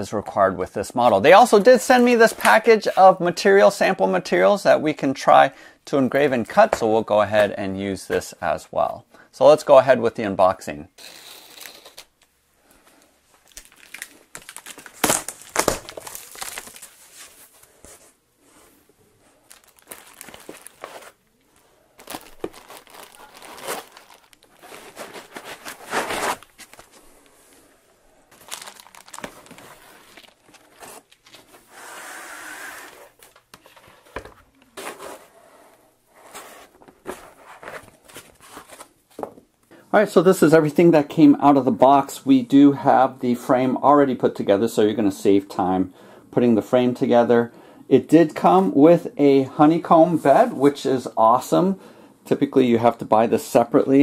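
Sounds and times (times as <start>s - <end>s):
packing tape tearing: 11.0s - 12.3s, 13.4s - 17.3s, 22.0s - 27.0s, 28.3s - 33.4s
plastic bags crinkling: 13.3s - 17.8s, 19.3s - 27.4s, 28.3s - 31.7s
cardboard and foam rustling: 13.3s - 27.4s, 28.3s - 31.7s, 33.1s - 35.5s, 36.1s - 39.5s.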